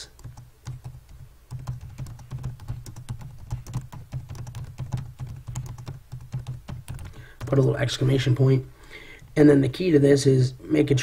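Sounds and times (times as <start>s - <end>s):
typing on computer keyboard: 0.0s - 7.6s.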